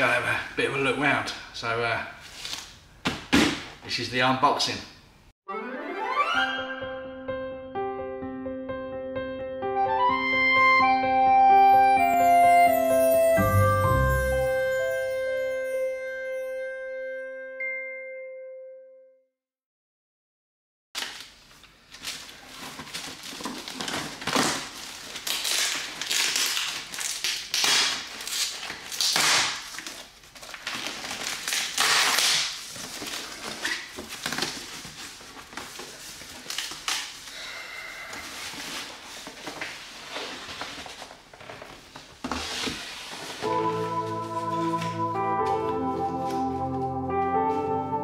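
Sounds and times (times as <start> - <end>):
packaging rustling and crinkling: 21.0 - 37.3, 38.2 - 43.5.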